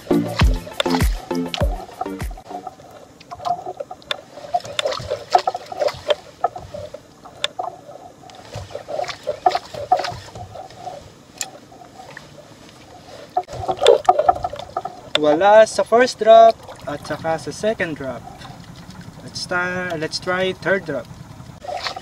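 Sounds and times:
water lapping against boat hull: 0.0s - 22.0s.

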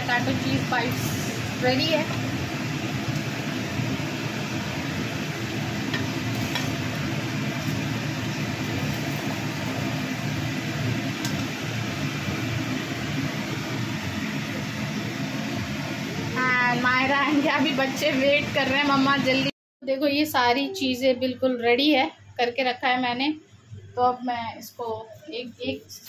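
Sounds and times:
fan motor hum: 0.0s - 26.0s
metal spoon clicking on pan: 5.9s - 6.7s, 11.2s - 11.5s.

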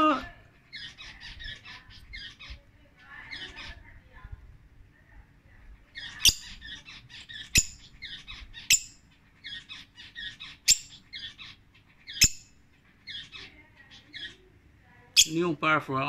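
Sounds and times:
lovebird chirping: 5.9s - 15.6s
shrill bird calls: 6.0s - 14.4s.

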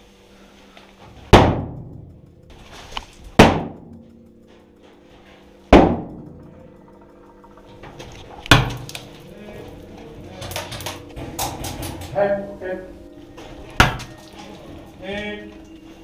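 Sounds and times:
low hum: 0.0s - 16.0s
loud echoing bangs: 3.4s - 4.0s, 5.7s - 6.4s.

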